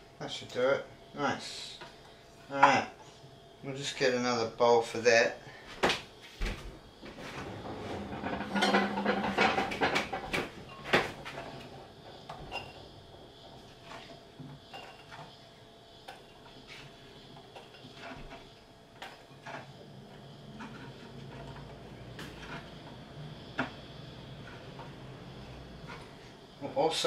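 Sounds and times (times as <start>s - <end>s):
ceramic dishes clattering: 8.0s - 11.1s.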